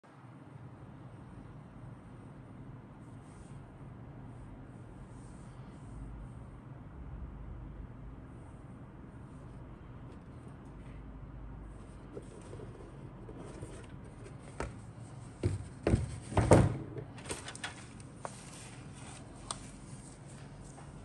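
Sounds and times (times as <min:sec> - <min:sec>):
knocks and scuffs: 0:14.1 - 0:16.8.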